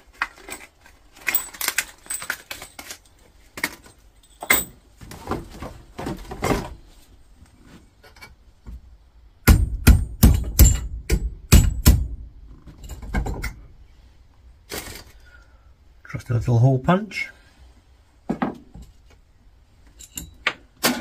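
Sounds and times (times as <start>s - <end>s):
handling clatter: 0.0s - 6.9s
hammer striking metal punch: 9.4s - 12.2s.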